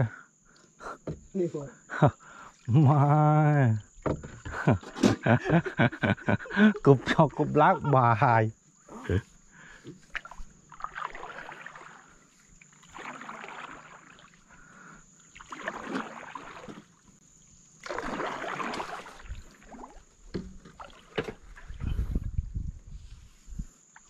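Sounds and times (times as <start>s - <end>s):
water swishing: 10.0s - 14.6s, 15.2s - 17.0s, 17.8s - 21.9s.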